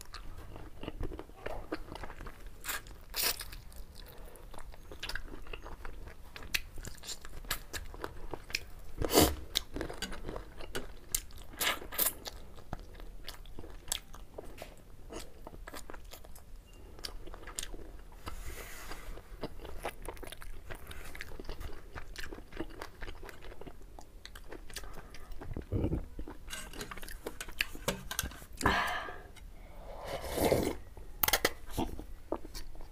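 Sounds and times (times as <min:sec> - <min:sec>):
person chewing noodles: 0:00.0 - 0:27.8.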